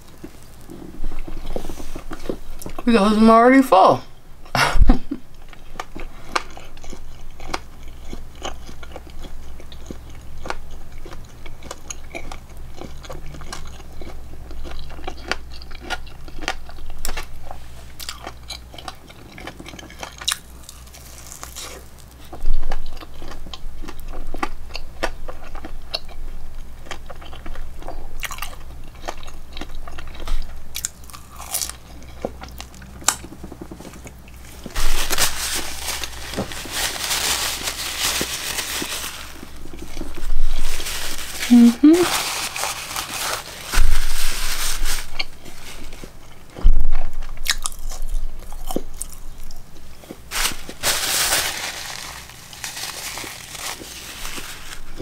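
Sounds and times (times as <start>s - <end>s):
person chewing food: 0.0s - 2.8s, 5.3s - 44.4s, 45.0s - 55.0s
rustling: 0.0s - 2.9s, 33.4s - 46.8s, 50.0s - 55.0s
low steady hum: 0.0s - 55.0s.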